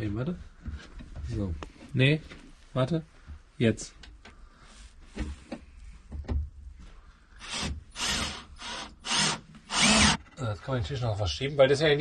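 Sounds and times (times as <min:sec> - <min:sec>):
cordless drill driving screws: 0:07.4 - 0:10.2.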